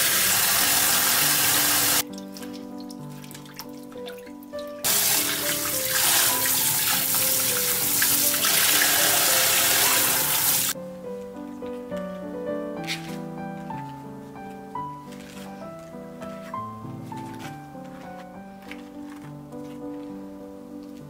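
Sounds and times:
tap water running into bowl: 0.0s - 10.8s
background music: 0.0s - 21.0s.

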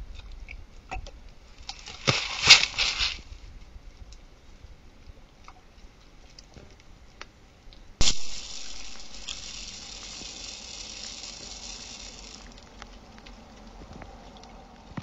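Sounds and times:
soft ticks and patter: 0.0s - 15.0s
steady high hiss: 1.5s - 3.5s, 8.0s - 14.0s.

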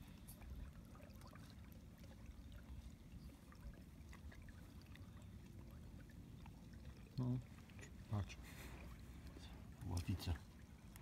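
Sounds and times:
low steady rumble: 0.0s - 11.0s
water lapping against hull: 0.0s - 11.0s.

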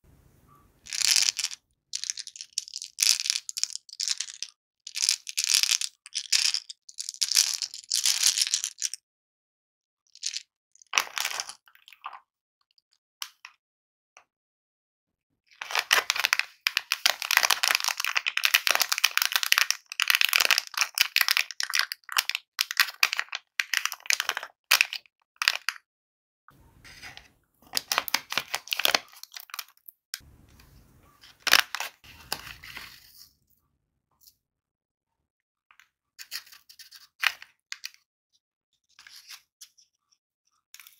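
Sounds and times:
candy eggs clattering: 0.9s - 8.9s, 27.6s - 29.8s
plastic wrapper crinkling: 27.7s - 29.7s.

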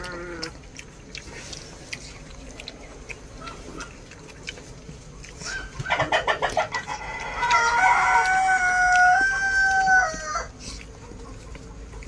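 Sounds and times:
rooster crowing: 7.0s - 10.5s.

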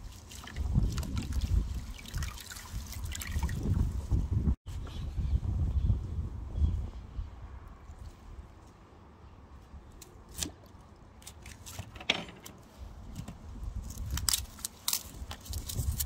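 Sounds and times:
garlic skins crackling and rustling: 13.1s - 16.0s.

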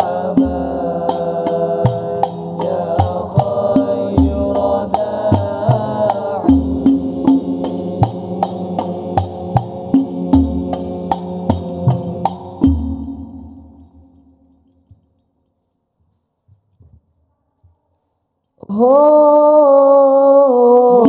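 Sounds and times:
young men chanting together: 0.0s - 12.8s
frame drums beating: 0.0s - 13.6s.

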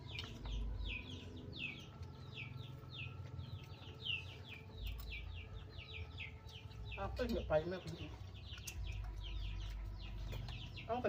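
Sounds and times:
chicks peeping: 0.0s - 11.0s.

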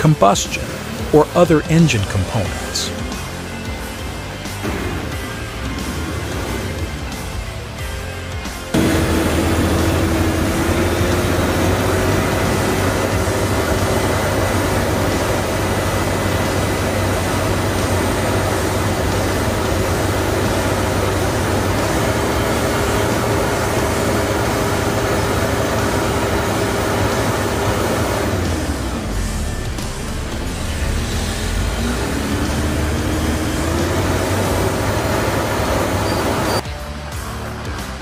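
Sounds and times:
diesel engine exhaust rushing: 0.0s - 36.6s
low hum: 8.7s - 36.6s.

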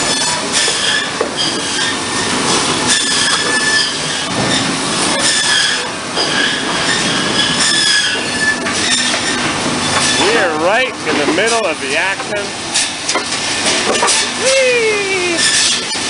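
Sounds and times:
saws and conveyors din: 0.0s - 16.0s
high squealing tones: 2.9s - 10.6s, 14.2s - 16.0s.

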